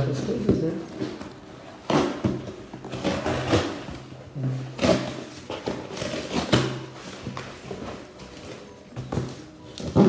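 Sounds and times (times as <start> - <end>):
cardboard ripping and crackling: 1.0 - 8.4.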